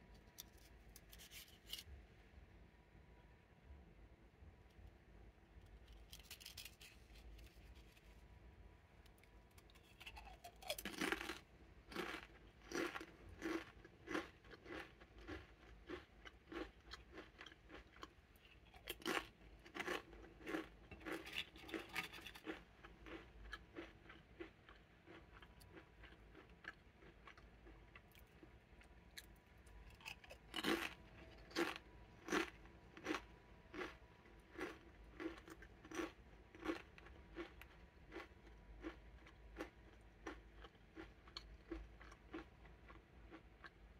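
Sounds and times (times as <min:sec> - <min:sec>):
chewing crisps crunches: 0:09.2 - 0:28.6, 0:29.2 - 0:43.8
crisp cracking on bite: 0:09.6 - 0:15.4.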